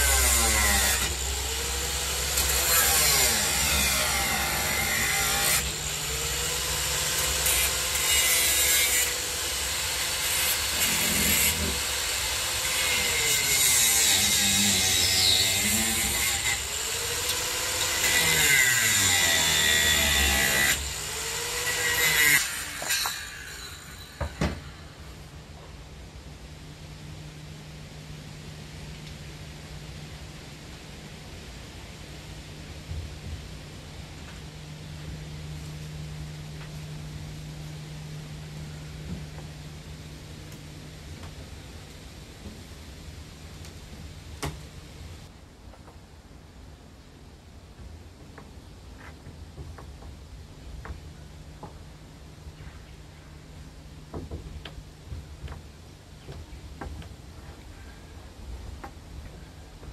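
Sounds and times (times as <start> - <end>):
angle grinder cutting steel screws: 0.0 - 24.8
constant low hum: 0.0 - 59.9
steady background hiss: 0.0 - 59.9.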